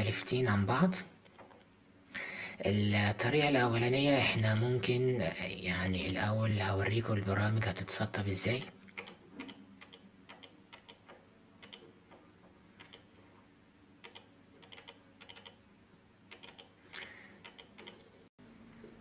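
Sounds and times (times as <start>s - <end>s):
mouse or keyboard clicks: 16.3s - 18.1s.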